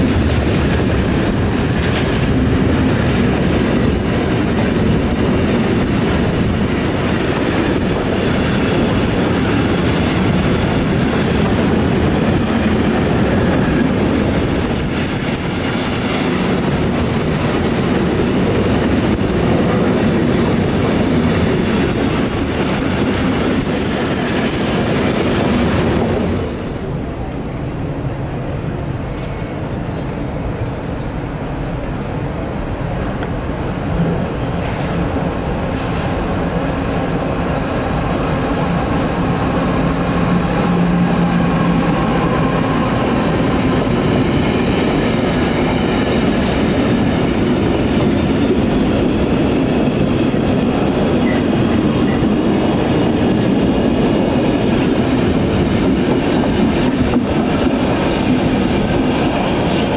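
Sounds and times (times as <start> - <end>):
freight train wheels on rails: 0.0 - 59.9.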